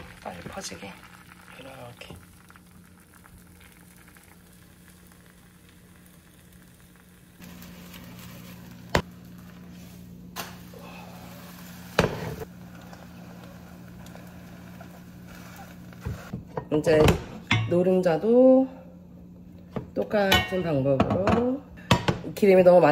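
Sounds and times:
egg sizzling in a pan: 0.0 - 16.3.

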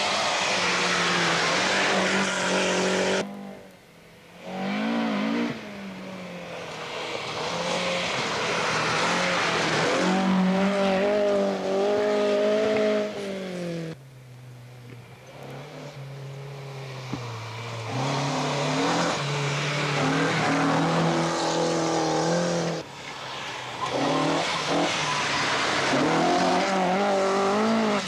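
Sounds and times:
tyres hissing on loose dirt: 0.0 - 3.2
rally car engine at full throttle: 0.0 - 28.0.

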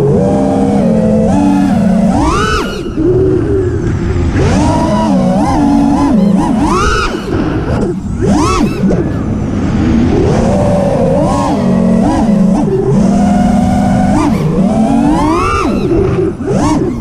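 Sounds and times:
quadcopter motors whining: 0.0 - 17.0.

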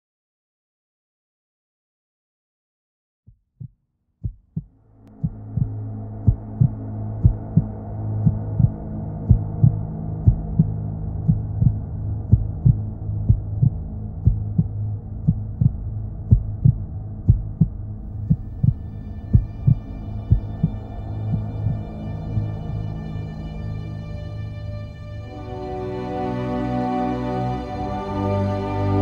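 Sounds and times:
heartbeat thumps: 3.3 - 22.0
low droning hum: 4.6 - 29.0
high held musical tone: 18.6 - 29.0.

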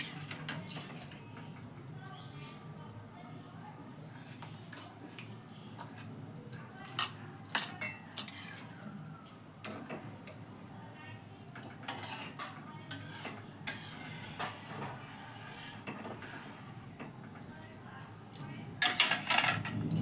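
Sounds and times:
ladle stirring thick food: 4.1 - 8.9, 11.5 - 17.4.

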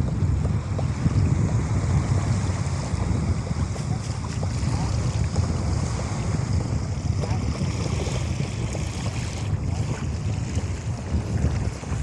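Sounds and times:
small waves washing on shore: 0.0 - 12.0
wind buffeting microphone: 0.0 - 12.0.

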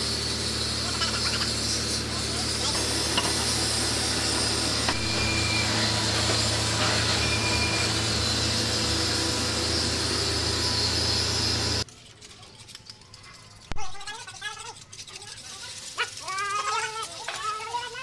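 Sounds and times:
machine humming and hissing: 0.0 - 11.9.

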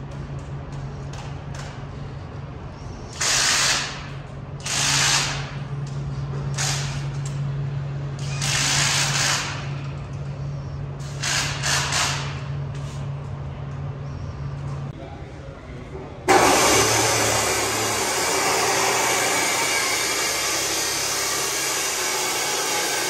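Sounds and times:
steady low hum: 0.0 - 3.2, 9.4 - 23.0
power tool bursts: 16.3 - 23.0.

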